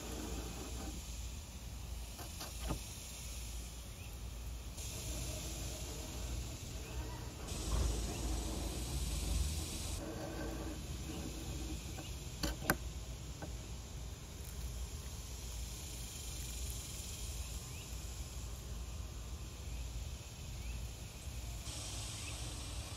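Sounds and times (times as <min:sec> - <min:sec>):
plane shaving wood: 0:00.0 - 0:01.0, 0:04.8 - 0:12.8.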